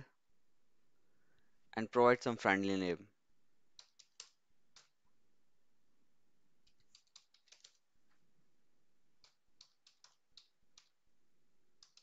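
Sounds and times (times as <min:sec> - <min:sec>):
faint keyboard typing: 0:03.7 - 0:05.0, 0:06.6 - 0:08.2, 0:09.2 - 0:11.0, 0:11.8 - 0:12.0.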